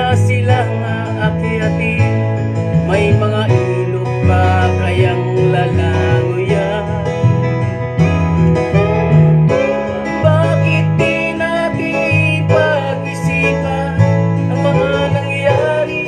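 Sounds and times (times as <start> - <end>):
man singing: 0.0 - 16.0
strummed acoustic guitar: 0.0 - 16.0.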